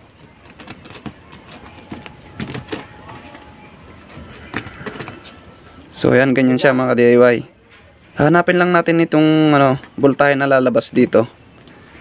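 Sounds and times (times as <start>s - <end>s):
clicks and rustles of wires: 0.0s - 3.5s.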